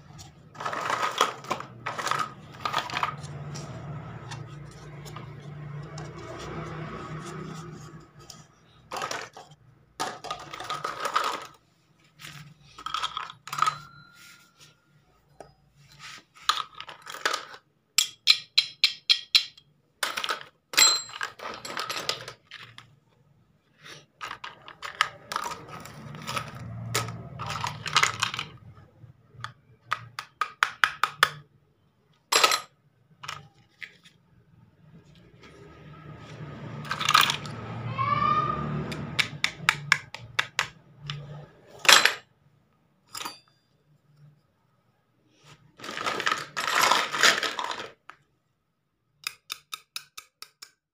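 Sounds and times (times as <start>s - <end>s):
plastic toy kitchenware clattering: 0.1s - 6.6s, 8.2s - 11.6s, 12.3s - 14.0s, 16.4s - 23.0s, 24.0s - 31.5s, 32.3s - 34.0s, 36.9s - 37.5s, 39.2s - 42.3s, 45.8s - 48.2s.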